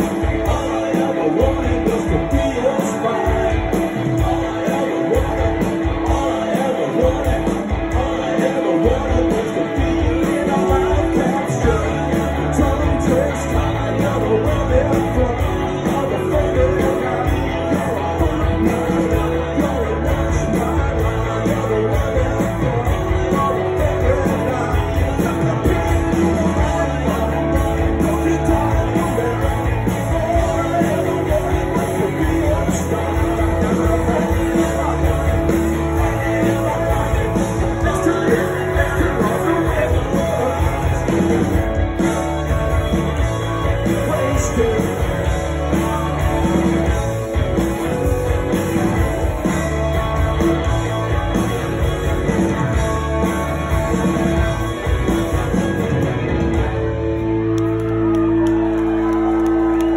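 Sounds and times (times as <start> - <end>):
person singing: 0.0 - 56.5
bass guitar: 0.0 - 59.9
drums: 0.0 - 59.9
electric guitars: 0.0 - 59.9.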